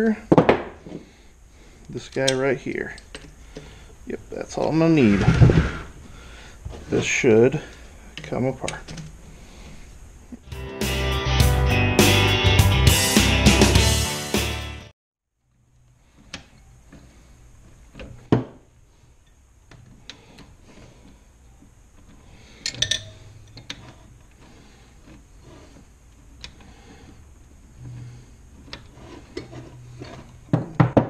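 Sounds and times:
wrench clinking on metal bolts: 0:22.6 - 0:23.8.

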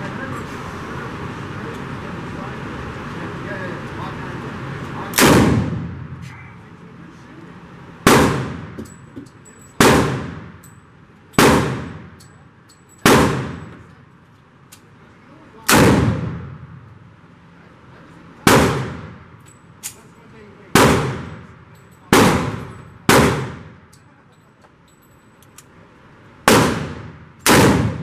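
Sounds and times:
revolver shots echoing indoors: 0:05.1 - 0:06.2, 0:08.0 - 0:09.0, 0:09.8 - 0:10.7, 0:11.3 - 0:12.3, 0:13.0 - 0:13.9, 0:15.6 - 0:17.1, 0:18.4 - 0:20.0, 0:20.7 - 0:23.9, 0:26.4 - 0:28.0.

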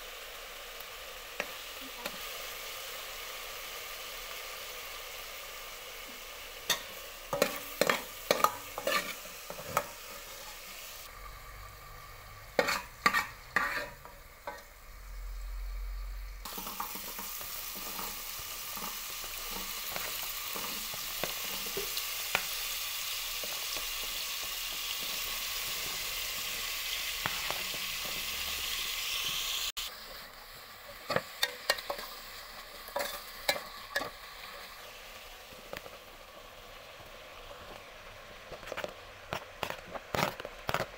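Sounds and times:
hot oil sizzling: 0:00.0 - 0:40.9
metal ladle scraping a pot: 0:06.7 - 0:10.6, 0:12.5 - 0:14.6.

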